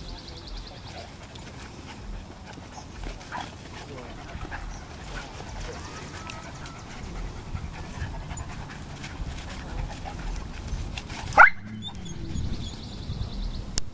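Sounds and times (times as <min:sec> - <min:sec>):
dogs panting and scuffling: 0:00.0 - 0:13.3
dog yelp: 0:11.2 - 0:12.8.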